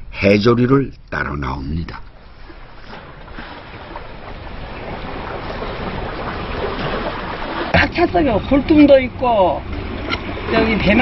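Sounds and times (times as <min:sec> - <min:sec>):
surf washing on rocks: 0:02.4 - 0:11.0.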